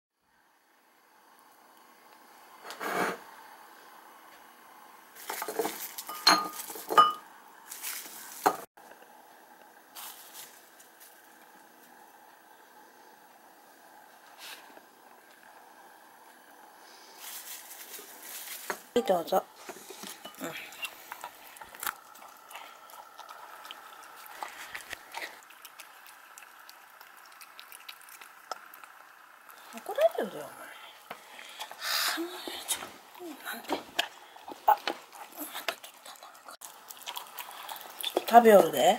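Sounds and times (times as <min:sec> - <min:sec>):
dishes and bowls clinking: 0:05.2 - 0:07.3
pet chewing from food bowl: 0:20.7 - 0:29.7.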